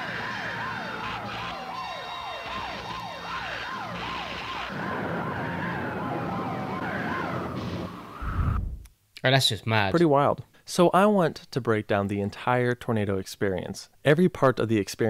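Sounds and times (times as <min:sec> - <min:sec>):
fast sweeping siren: 0:00.0 - 0:08.6
slow wailing siren: 0:00.0 - 0:08.6.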